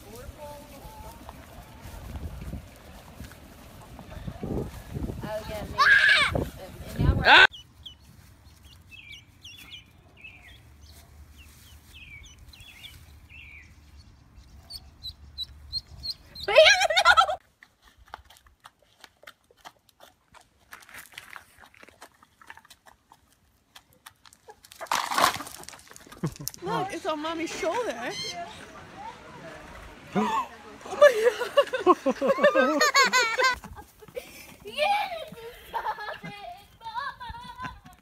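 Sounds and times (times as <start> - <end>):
hens pecking ticks: 17.4 - 26.9.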